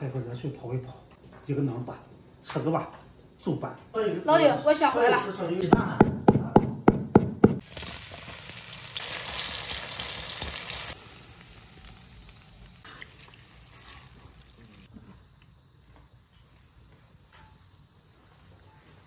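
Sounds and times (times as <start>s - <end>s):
knife chopping on wooden board: 5.7s - 7.6s
oil sizzling in wok: 7.6s - 14.9s.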